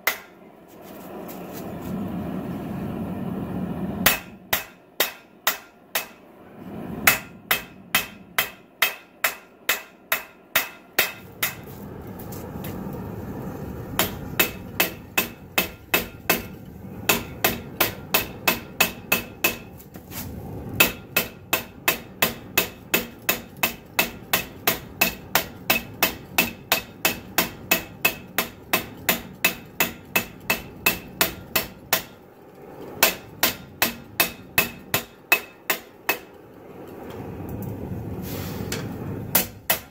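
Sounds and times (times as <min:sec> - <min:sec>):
hammer ringing on hot steel: 0:00.0 - 0:00.4, 0:04.0 - 0:06.2, 0:07.1 - 0:11.7, 0:14.0 - 0:19.7, 0:20.8 - 0:32.2, 0:33.0 - 0:36.5, 0:39.3 - 0:39.9.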